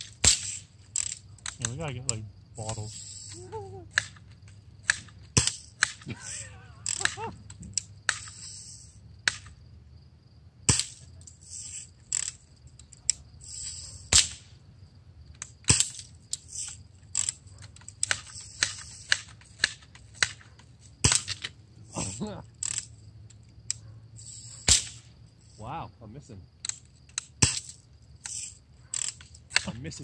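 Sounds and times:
air gun shots: 0:00.0 - 0:00.7, 0:04.8 - 0:06.1, 0:13.5 - 0:14.5, 0:15.6 - 0:16.8, 0:21.0 - 0:21.4, 0:24.4 - 0:25.1, 0:27.4 - 0:29.7
pellets hitting glass: 0:05.3 - 0:06.0, 0:10.7 - 0:11.9, 0:15.6 - 0:16.7, 0:18.0 - 0:20.3, 0:21.0 - 0:21.5, 0:24.2 - 0:25.7, 0:27.4 - 0:28.5.

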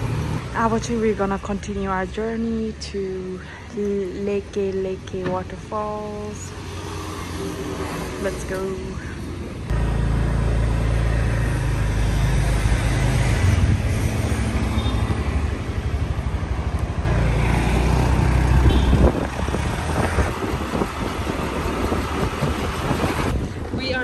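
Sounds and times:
wind rumbling across microphone: 0:12.4 - 0:14.6, 0:17.8 - 0:24.0.

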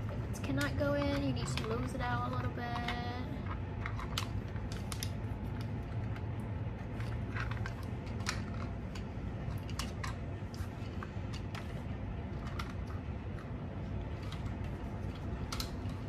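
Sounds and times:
steady low hum: 0:00.0 - 0:16.0
plastic parts clicking: 0:07.0 - 0:13.5, 0:14.2 - 0:16.0.

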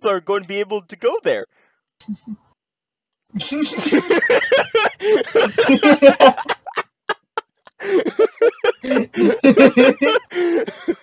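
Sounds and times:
men laughing hard: 0:03.4 - 0:11.0.

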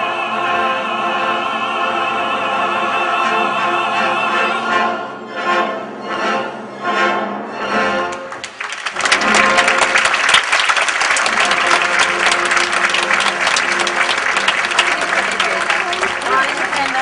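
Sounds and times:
orchestra and choir chords: 0:00.0 - 0:10.1, 0:11.1 - 0:16.9
audience applause: 0:08.1 - 0:17.0.

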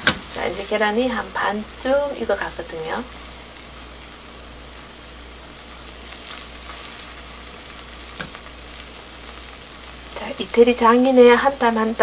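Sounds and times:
eggs sizzling in a pan: 0:00.0 - 0:12.0
spatula stirring: 0:03.1 - 0:10.2.

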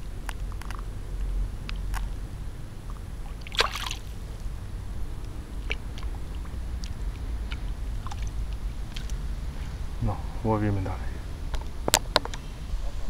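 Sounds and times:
low rumble: 0:00.0 - 0:13.0
fish splashing into river: 0:03.3 - 0:04.2.

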